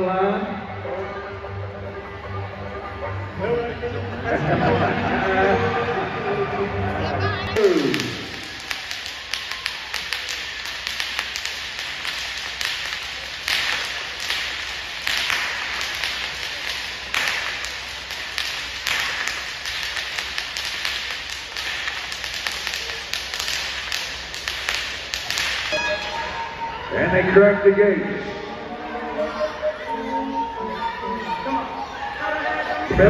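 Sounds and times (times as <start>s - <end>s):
loud whip crack: 7.6s - 26.0s
whips cracking: 7.6s - 26.4s.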